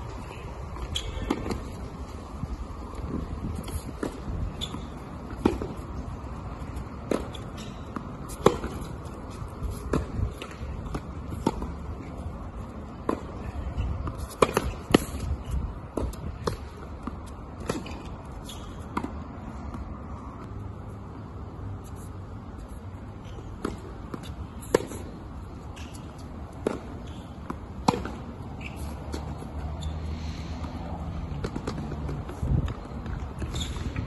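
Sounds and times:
racket striking tennis ball: 3.6s - 5.8s, 7.0s - 11.8s, 14.0s - 19.2s, 23.6s - 25.2s, 25.8s - 29.7s, 31.4s - 32.8s.

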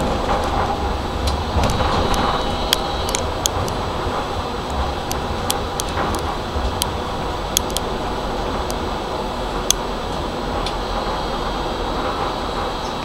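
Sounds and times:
tram running hum: 0.0s - 13.0s
sharp clicks: 5.0s - 7.9s.

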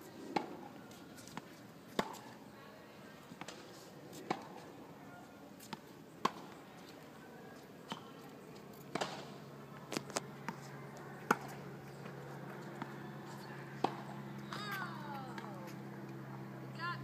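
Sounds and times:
tennis ball hit by rackets: 0.3s - 0.6s, 1.2s - 2.4s, 3.4s - 4.6s, 5.6s - 6.6s, 7.9s - 8.2s, 8.9s - 11.7s, 12.6s - 15.8s.

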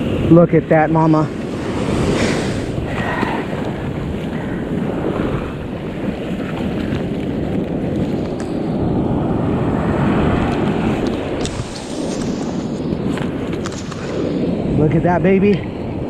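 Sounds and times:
surf washing up beach: 0.0s - 16.0s
wind buffeting microphone: 0.0s - 16.0s.

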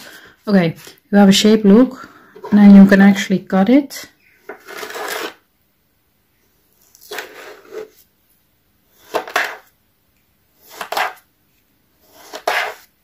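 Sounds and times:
knife scraping through gritty sand: 4.5s - 5.4s, 12.0s - 12.9s.

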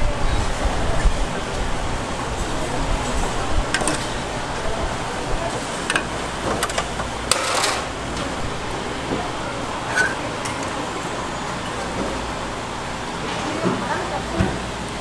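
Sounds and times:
metal tongs clinking on pot: 9.8s - 10.8s.

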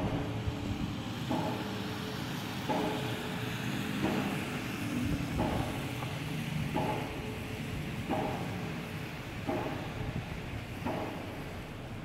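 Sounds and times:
pile driver hammering: 1.3s - 1.9s, 2.6s - 3.3s, 4.0s - 4.7s, 5.3s - 11.5s.

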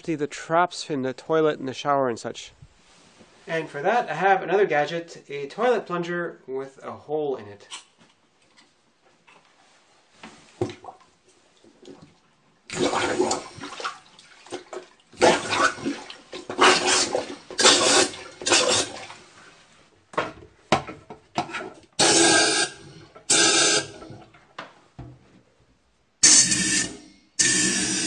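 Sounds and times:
compressed air bursts: 16.6s - 19.0s, 22.0s - 24.0s, 26.2s - 28.0s.

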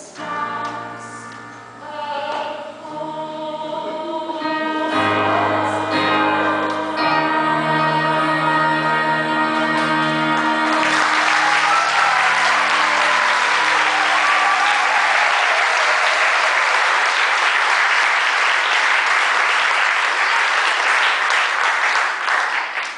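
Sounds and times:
audience applauding: 10.4s - 22.9s.

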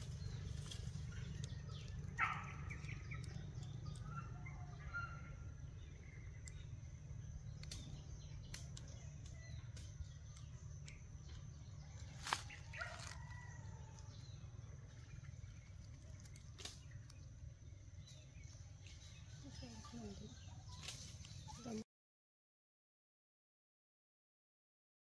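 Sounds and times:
steady low rumble: 0.0s - 21.4s
birds chirping: 0.0s - 21.8s
sharp clicks: 7.4s - 11.4s.

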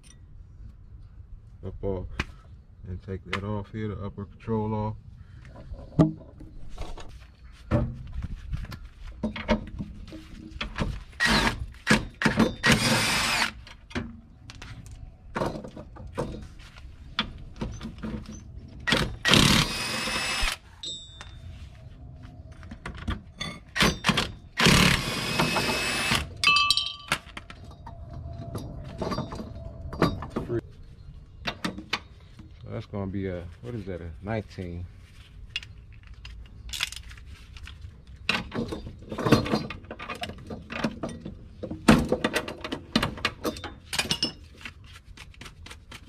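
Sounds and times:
cordless power tool whirring: 12.6s - 13.6s, 18.9s - 20.6s, 24.6s - 26.3s
metallic clanks of tools: 26.4s - 30.6s.

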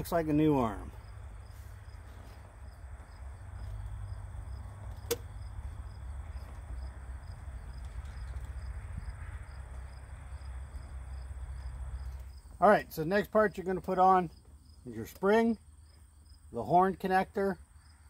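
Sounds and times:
insects chirping: 0.0s - 18.0s
sharp click: 5.0s - 5.3s.

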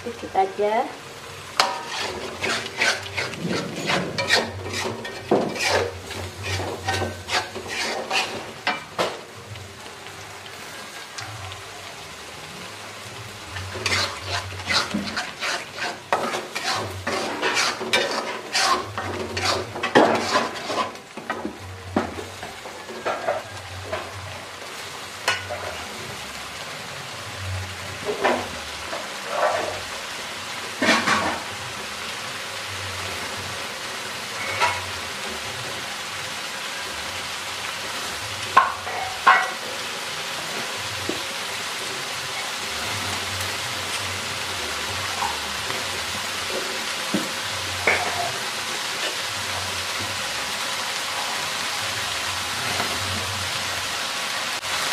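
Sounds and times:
sizzling in a wok: 0.0s - 54.9s
metal spatula scraping a wok: 1.6s - 8.9s, 13.6s - 21.1s, 29.2s - 29.9s, 30.8s - 31.4s, 34.3s - 35.0s.

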